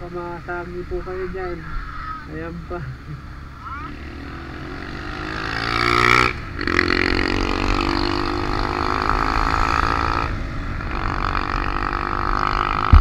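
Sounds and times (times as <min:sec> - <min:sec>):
wind and road noise: 0:00.0 - 0:13.0
motorcycle engine revving: 0:03.0 - 0:13.0.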